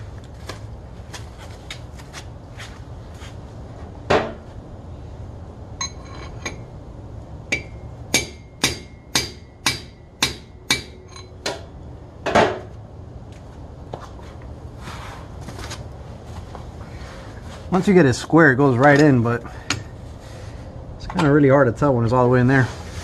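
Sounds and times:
hammer striking metal: 7.5s - 11.6s.

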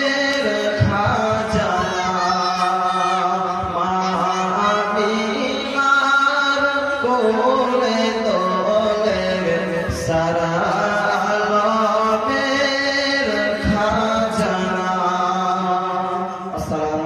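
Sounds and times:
man singing devotional song: 0.0s - 17.0s.

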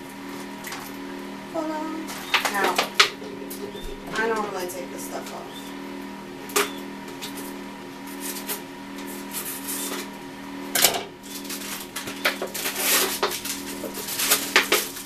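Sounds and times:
low hum: 0.0s - 14.4s
plastic crinkling: 11.3s - 15.0s.

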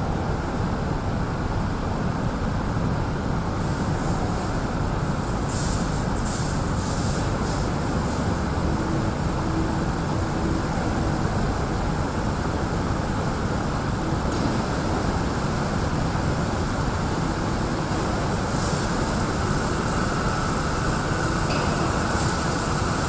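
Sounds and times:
water spray and machinery rushing: 3.6s - 23.0s
sharp hiss bursts: 5.2s - 8.4s.

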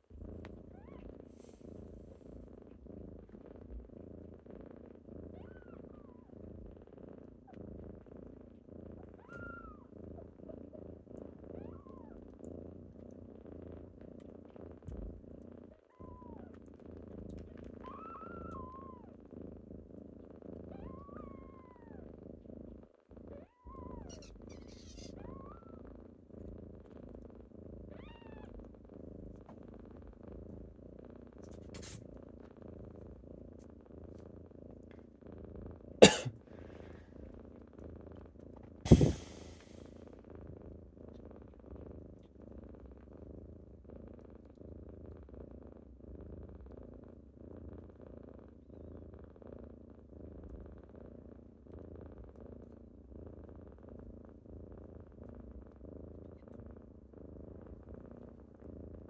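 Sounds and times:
kittens purring: 0.0s - 59.0s
kittens mewing: 23.6s - 25.8s, 38.9s - 39.8s.

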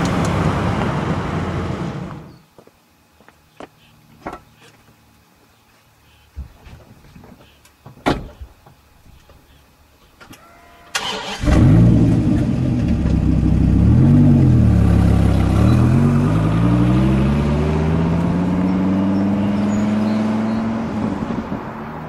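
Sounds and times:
sports car engine revving: 11.4s - 21.7s.

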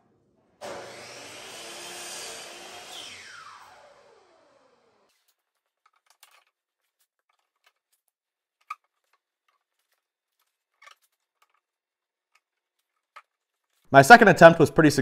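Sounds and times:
router coasting down: 0.6s - 5.2s.

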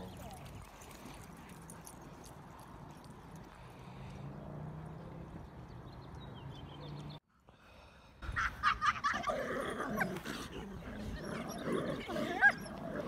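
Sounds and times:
huskies growling and whining: 9.1s - 13.0s.

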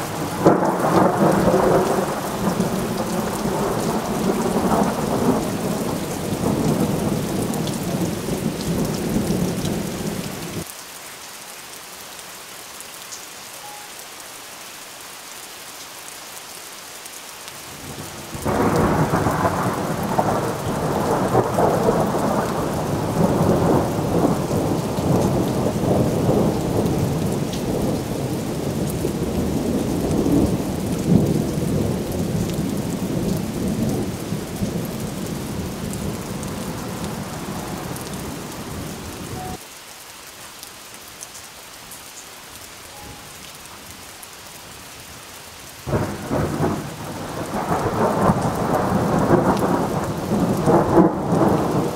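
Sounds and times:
thunder rumbling: 0.0s - 10.6s, 18.4s - 39.6s, 45.9s - 51.9s
steady rain: 0.0s - 51.9s.

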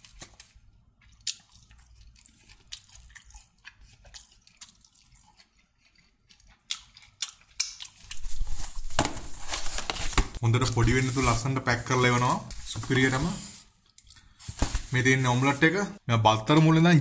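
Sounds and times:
person chewing food: 0.0s - 8.4s.

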